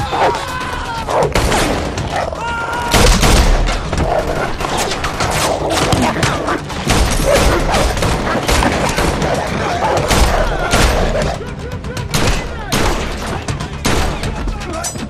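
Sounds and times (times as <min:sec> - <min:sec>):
gunshots: 0:02.9 - 0:11.4, 0:12.0 - 0:14.4.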